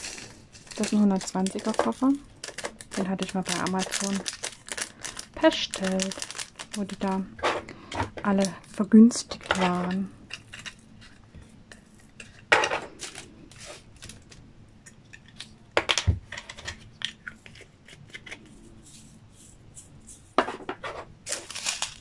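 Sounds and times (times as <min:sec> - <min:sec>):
plastic beads rattling: 0:00.0 - 0:07.3, 0:21.2 - 0:22.0.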